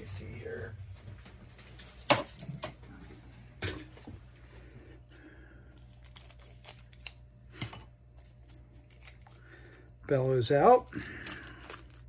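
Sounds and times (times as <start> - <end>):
plastic wrapping crinkling and tearing: 5.8 - 7.2, 8.2 - 12.0.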